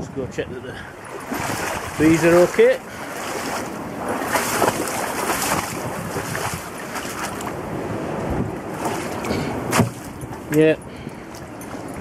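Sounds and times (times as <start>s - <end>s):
wind buffeting microphone: 0.0s - 12.0s
splashy steps through water: 1.0s - 7.6s, 8.7s - 10.6s.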